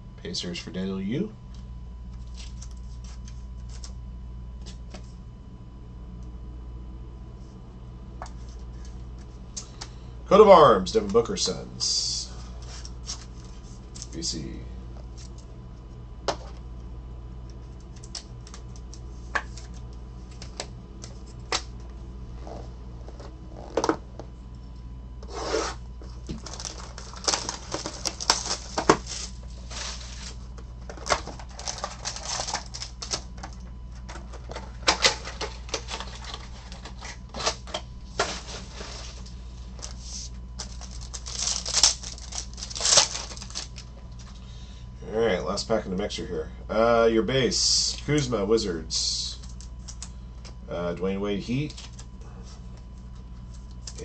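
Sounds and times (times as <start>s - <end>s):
steady low hum: 0.0s - 54.0s
foil wrapper crinkling and tearing: 26.3s - 33.4s, 40.6s - 44.2s.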